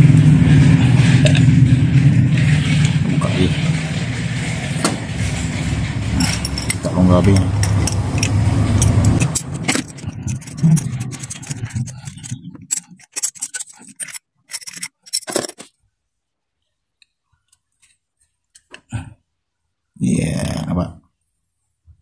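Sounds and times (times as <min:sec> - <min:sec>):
socket wrench scraping and clicking: 0:06.2 - 0:15.7.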